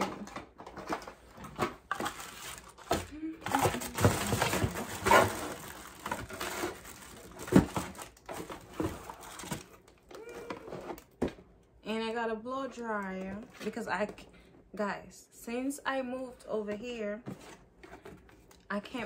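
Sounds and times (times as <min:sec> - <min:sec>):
cardboard boxes rustling: 0:00.0 - 0:09.8.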